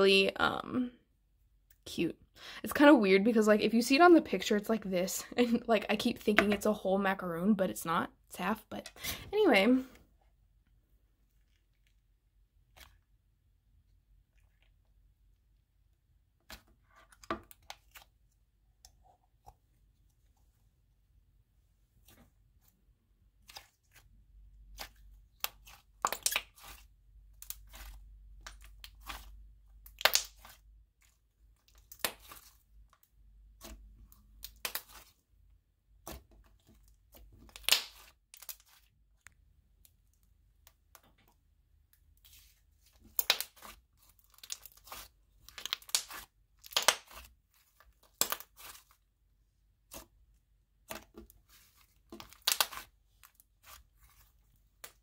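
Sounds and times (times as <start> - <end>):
slime squishing: 22.0 - 55.0
slime crackling pops: 29.9 - 30.6.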